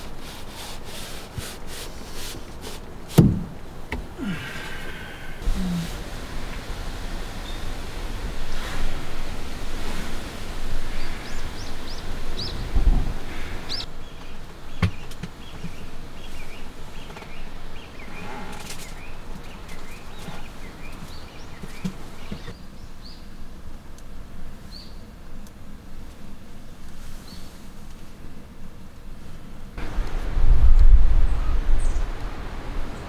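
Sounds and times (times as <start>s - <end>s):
steady outdoor hiss: 0.0s - 33.0s
dull thump: 3.1s - 4.1s
sharp knock: 3.2s - 3.5s
small birds chirping: 6.5s - 8.8s, 10.8s - 23.4s, 24.6s - 25.6s.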